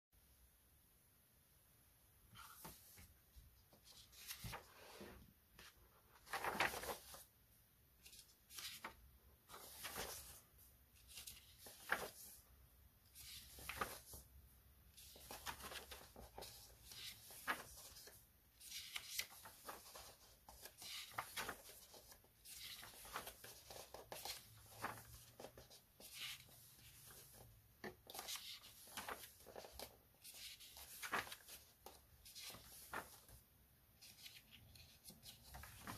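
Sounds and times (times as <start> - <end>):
paper pages turning: 3.7 - 7.3, 8.0 - 10.4, 11.0 - 12.4, 13.1 - 14.2, 14.9 - 33.4, 34.0 - 35.9.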